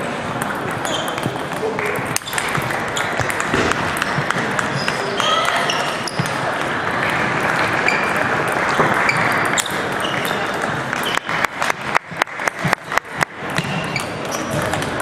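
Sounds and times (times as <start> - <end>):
ping-pong ball clicks: 0.4 - 6.7.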